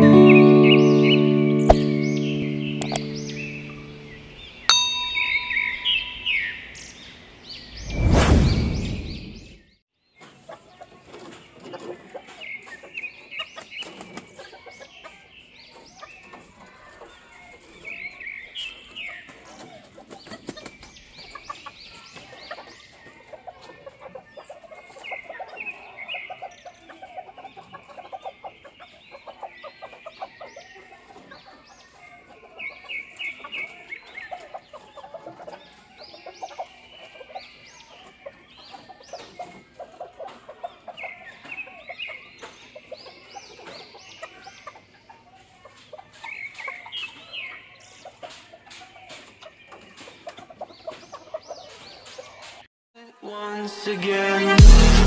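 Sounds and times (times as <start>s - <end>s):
chickens clucking: 0.0s - 7.7s, 10.2s - 52.7s
short high chirping calls: 0.7s - 7.0s.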